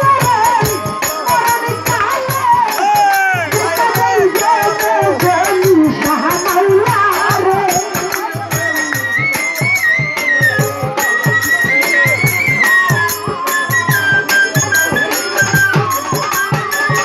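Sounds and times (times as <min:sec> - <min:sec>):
woman singing: 0:00.0 - 0:11.9
high held instrumental melody: 0:00.0 - 0:17.0
rattling percussion: 0:00.0 - 0:17.0
steady drumbeat: 0:00.0 - 0:17.0.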